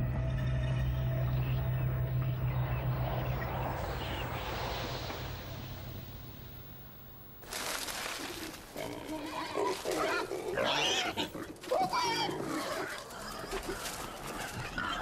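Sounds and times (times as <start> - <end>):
rustling background: 7.4 - 10.6.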